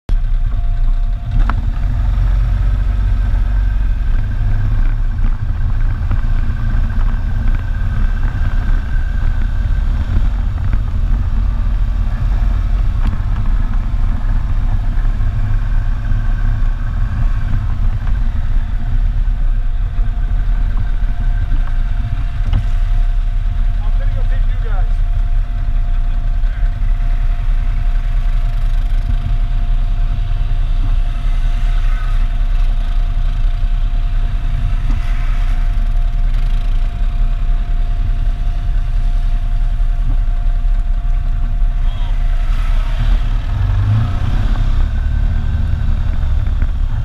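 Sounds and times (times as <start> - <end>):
atv engine running: 0.1 - 47.0.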